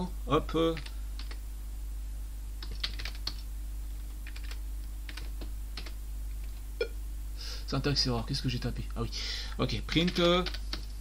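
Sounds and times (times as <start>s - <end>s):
steady low hum: 0.0s - 11.0s
computer keyboard typing: 0.7s - 1.4s, 2.6s - 3.4s, 4.0s - 6.6s, 9.9s - 10.9s.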